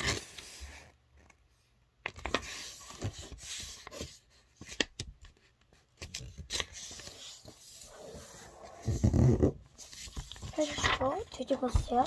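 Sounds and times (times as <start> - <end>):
paper rustling and crackling: 6.0 - 12.0.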